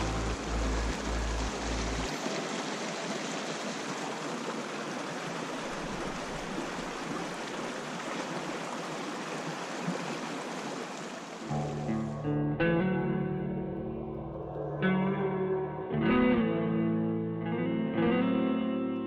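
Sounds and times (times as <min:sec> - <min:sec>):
river rushing over boulders: 0:00.0 - 0:11.5.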